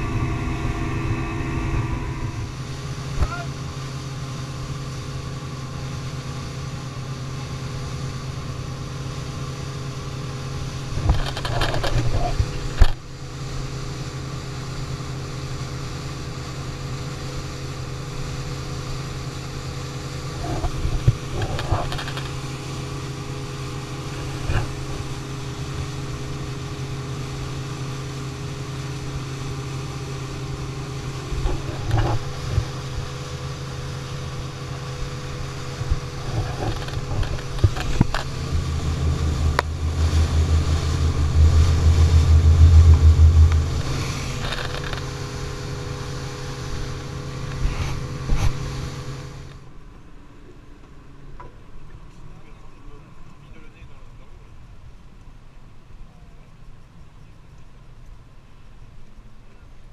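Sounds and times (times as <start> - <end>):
boat engine drone: 0.0 - 49.7
hull rushing through water: 30.1 - 45.6.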